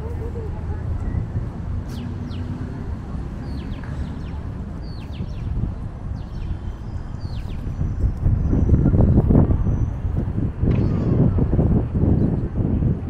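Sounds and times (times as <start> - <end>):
steady low rumble: 0.0 - 13.0
small birds chirping: 1.8 - 2.6, 3.3 - 10.0.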